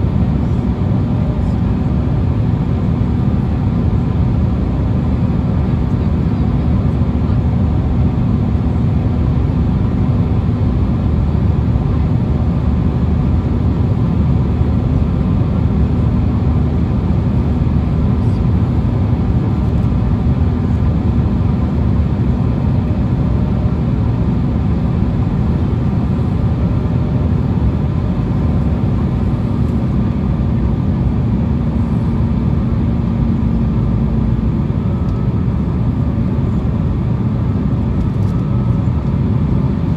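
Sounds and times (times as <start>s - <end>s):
jet engines roaring in cabin: 0.0s - 39.9s
steady hum: 0.0s - 39.9s.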